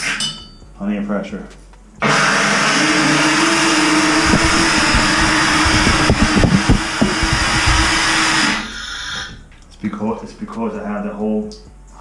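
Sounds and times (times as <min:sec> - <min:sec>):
compressed air hissing from spout: 0:03.1 - 0:09.4.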